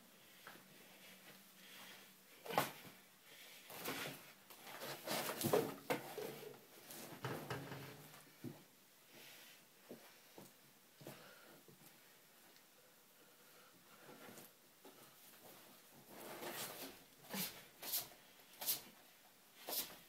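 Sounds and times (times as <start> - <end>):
rustling: 3.6 - 8.2.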